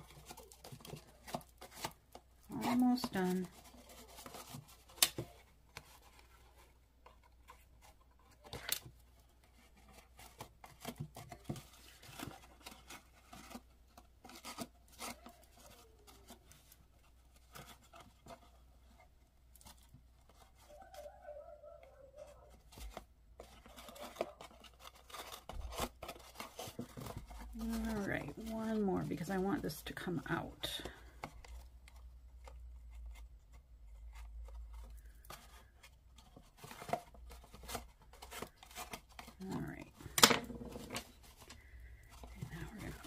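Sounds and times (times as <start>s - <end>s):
cardstock and ribbon rustling: 0.0s - 43.0s.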